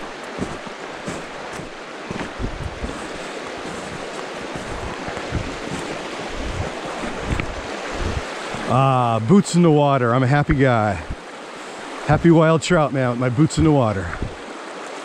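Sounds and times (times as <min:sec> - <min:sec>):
wind buffeting microphone: 0:00.0 - 0:08.8, 0:14.1 - 0:14.4
stream rushing over rocks: 0:00.0 - 0:15.0.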